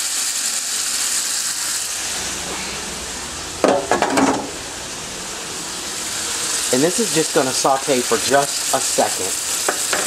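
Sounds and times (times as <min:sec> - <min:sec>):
food sizzling in a skillet: 0:00.0 - 0:10.0
dishes clattering at sink: 0:03.6 - 0:04.5, 0:09.7 - 0:10.0.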